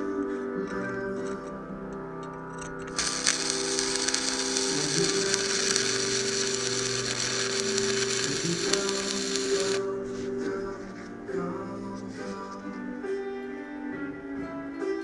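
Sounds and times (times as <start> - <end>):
welding arc crackling hiss: 2.9 - 9.9.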